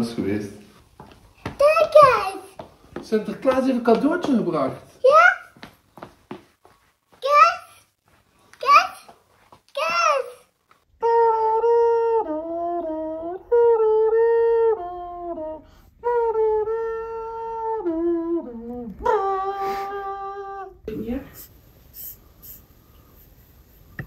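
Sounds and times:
person humming a slow tune: 11.0s - 20.9s.

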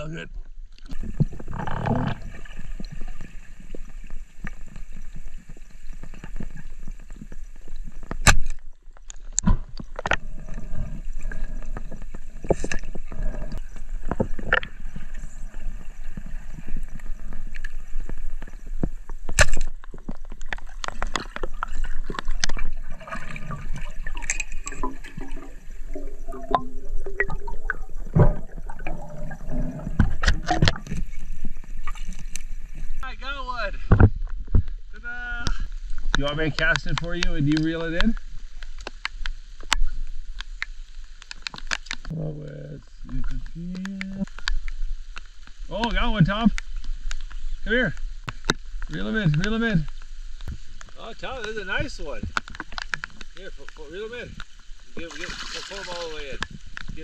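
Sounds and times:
underwater gurgling and bubbling: 0.5s - 33.0s.

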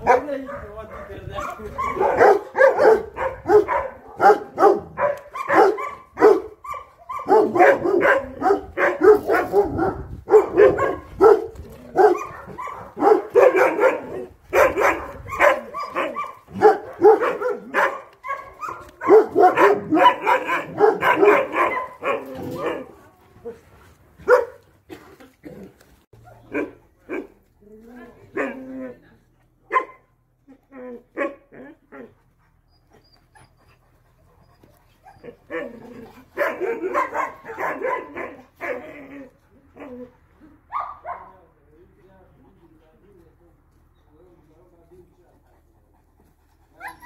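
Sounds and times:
dogs barking: 0.0s - 23.0s, 24.2s - 24.6s, 26.2s - 27.4s, 29.7s - 30.1s, 31.2s - 32.1s, 35.1s - 39.0s, 40.7s - 41.4s.

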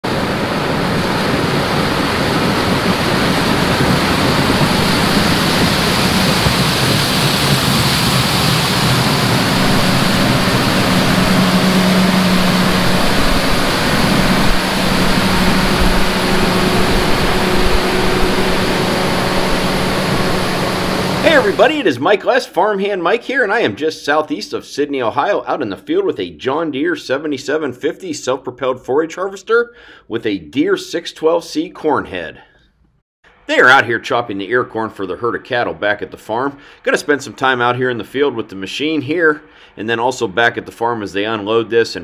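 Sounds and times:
low engine hum: 0.1s - 21.6s
harvester chopping corn: 2.0s - 21.6s.

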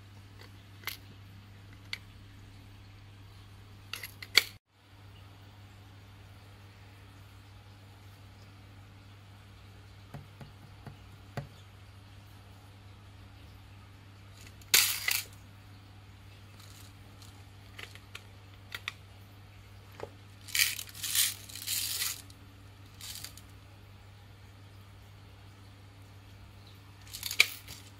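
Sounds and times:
candies rattling in machine: 20.4s - 22.3s, 23.0s - 23.4s, 27.0s - 27.9s
candy balls clattering into tray: 20.4s - 22.3s, 23.0s - 23.4s, 27.0s - 27.9s.

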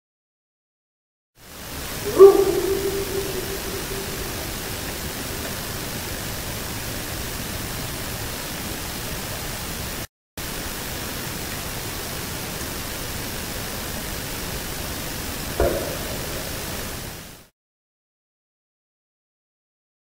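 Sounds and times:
steady hiss of field recording: 1.4s - 17.5s.

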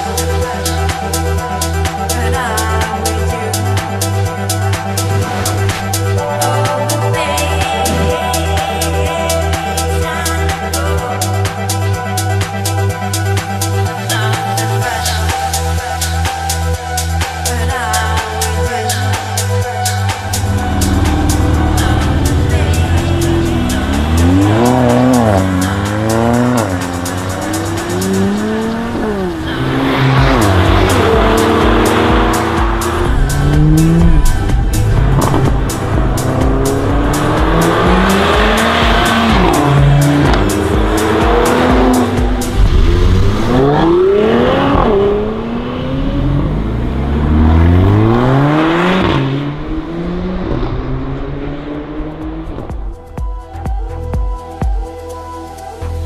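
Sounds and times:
music with steady beat: 0.0s - 45.4s, 51.4s - 56.0s
car accelerating hard: 20.3s - 53.0s
loud rushing noise: 26.6s - 45.7s.

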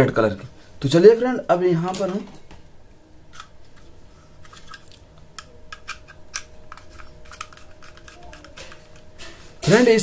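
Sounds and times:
screwdriver clicking and scraping: 4.5s - 9.1s.

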